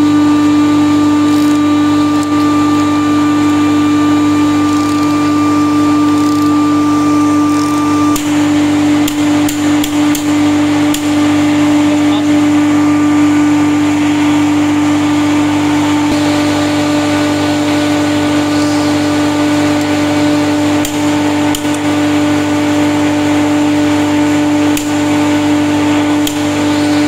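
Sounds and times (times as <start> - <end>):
machinery hum with low drone: 0.0 - 27.0
torque wrench clicks: 6.0 - 6.6, 9.0 - 11.2, 20.8 - 21.8, 26.2 - 26.5.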